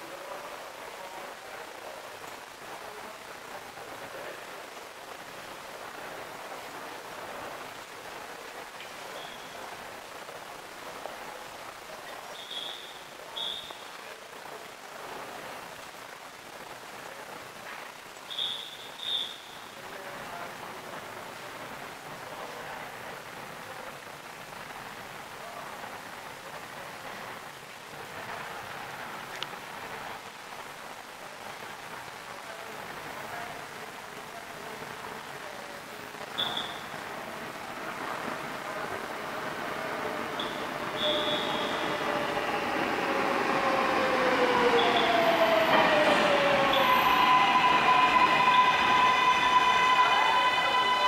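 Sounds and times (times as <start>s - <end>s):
steady hiss: 0.0s - 44.0s
high-pitched squeals: 40.3s - 51.0s.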